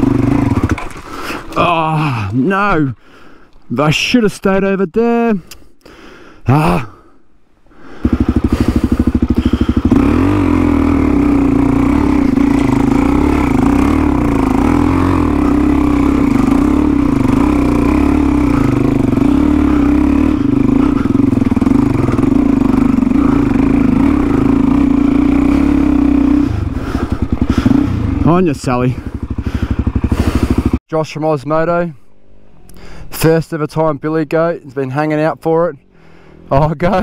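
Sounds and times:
dirt bike engine running: 0.0 - 2.6, 7.8 - 30.8.

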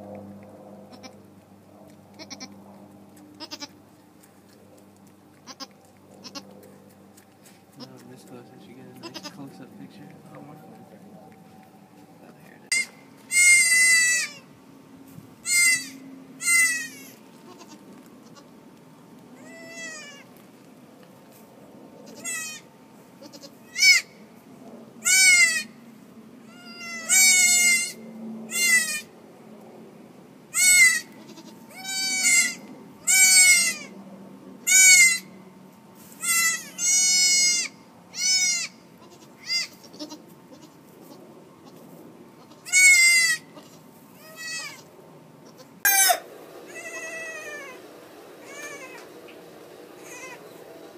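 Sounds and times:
goat kids bleating: 0.9 - 1.3, 2.1 - 2.7, 3.3 - 3.8, 5.3 - 6.6, 7.7 - 8.0, 9.0 - 9.4, 12.7 - 14.5, 15.4 - 18.5, 19.4 - 20.4, 22.0 - 24.1, 25.0 - 25.8, 26.4 - 29.1, 30.5 - 34.0, 34.6 - 35.4, 36.2 - 47.8, 48.4 - 49.2, 50.0 - 50.4.

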